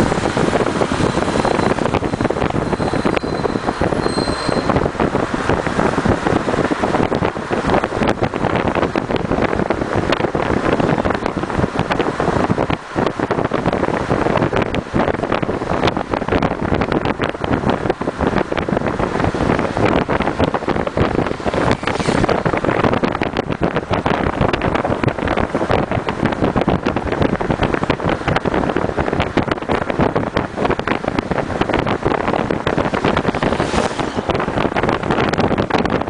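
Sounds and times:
car road and engine noise: 0.0 - 36.0
wind buffeting microphone: 0.0 - 36.0
passing vehicle hiss: 21.5 - 22.6, 32.7 - 34.7.

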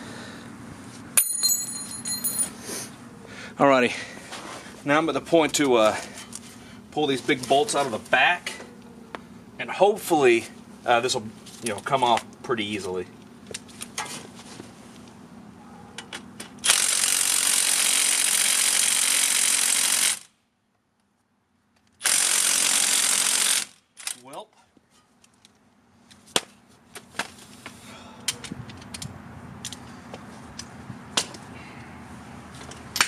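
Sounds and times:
tools clanking: 1.2 - 2.6.

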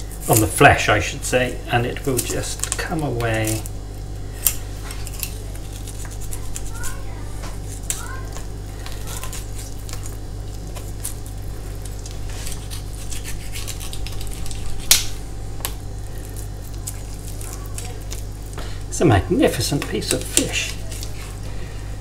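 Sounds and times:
knife scraping fish bones: 4.4 - 7.0, 12.2 - 15.1.

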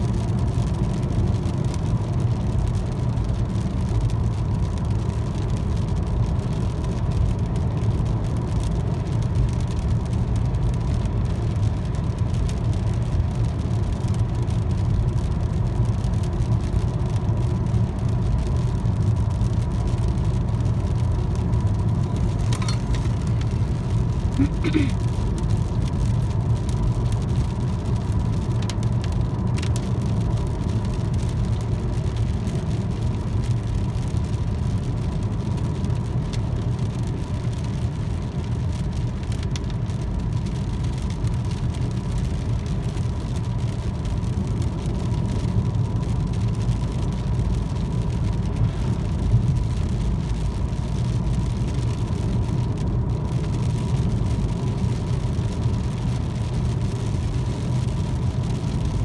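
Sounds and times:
car road rumble: 0.0 - 59.0.

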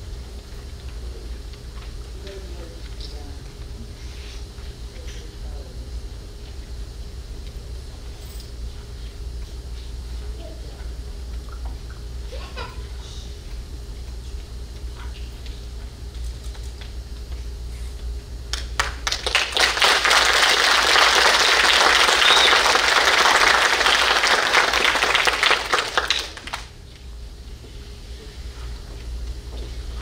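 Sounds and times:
audience applauding: 18.5 - 26.7.

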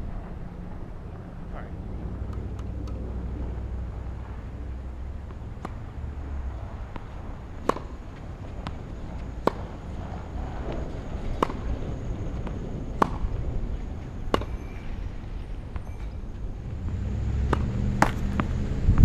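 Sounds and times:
low steady rumble: 0.0 - 19.0
racket striking tennis ball: 2.2 - 14.9, 17.4 - 18.6
tennis ball bouncing: 2.2 - 18.6.

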